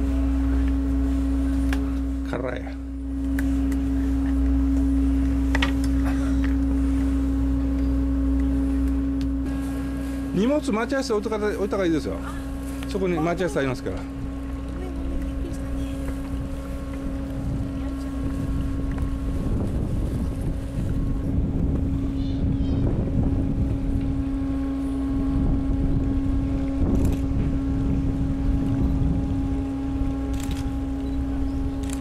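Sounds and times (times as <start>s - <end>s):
boat engine idling: 0.0s - 32.0s
wind rumble on microphone: 12.2s - 32.0s.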